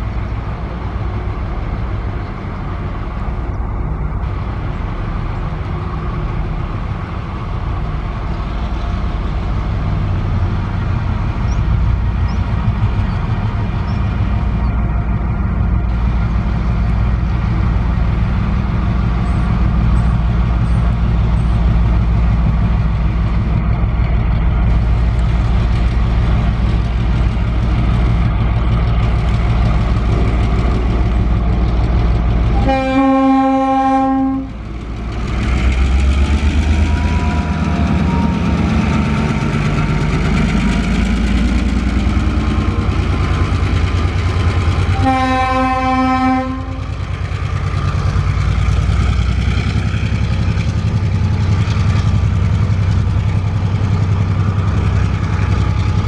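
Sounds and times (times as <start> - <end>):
diesel locomotive engine throbbing: 0.0 - 56.0
train horn blasts: 32.5 - 34.6, 44.9 - 47.0.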